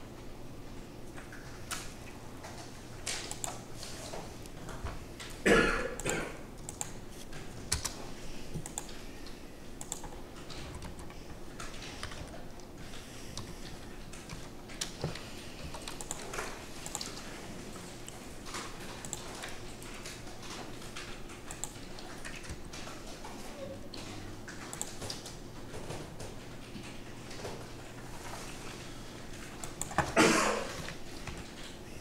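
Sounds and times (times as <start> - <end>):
keyboard and mouse clicks: 1.1 - 5.4, 6.0 - 17.3, 18.0 - 27.8, 29.3 - 30.2
person coughing: 5.4 - 6.5, 30.1 - 30.8.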